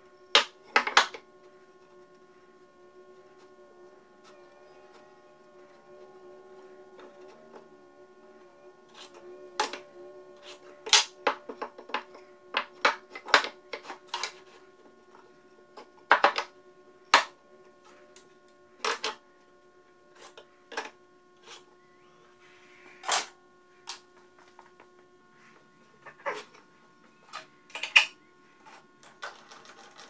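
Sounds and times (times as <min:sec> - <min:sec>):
faint steady hum: 0:00.0 - 0:30.0
wood and tools knocking on workbench: 0:16.1 - 0:16.5.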